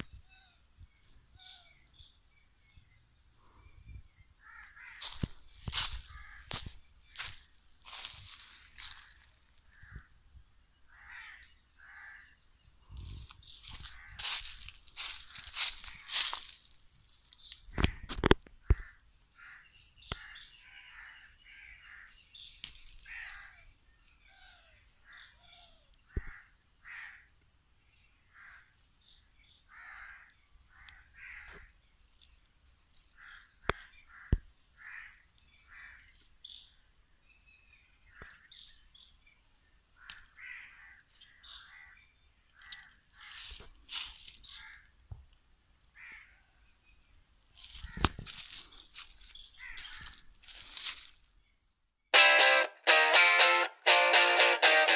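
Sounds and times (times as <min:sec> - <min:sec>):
small birds chirping: 0:00.0 - 0:51.9
crows cawing: 0:04.4 - 0:10.2, 0:10.9 - 0:12.4, 0:13.6 - 0:16.6, 0:17.7 - 0:22.2, 0:23.0 - 0:23.6, 0:26.1 - 0:27.3, 0:28.3 - 0:28.8, 0:29.7 - 0:31.7, 0:33.2 - 0:36.2, 0:40.0 - 0:42.0, 0:42.6 - 0:44.9, 0:46.0 - 0:46.5, 0:47.7 - 0:48.6, 0:49.6 - 0:50.9.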